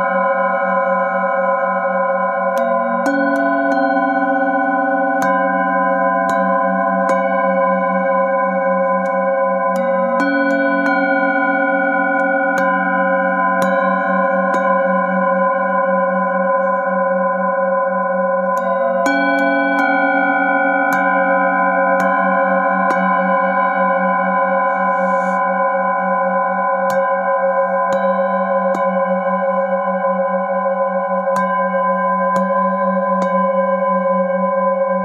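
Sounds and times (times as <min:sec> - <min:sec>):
singing bowl ringing: 0:00.0 - 0:35.0
mallet tapping singing bowl: 0:02.5 - 0:17.0, 0:18.0 - 0:23.8, 0:26.8 - 0:30.0, 0:31.2 - 0:34.1.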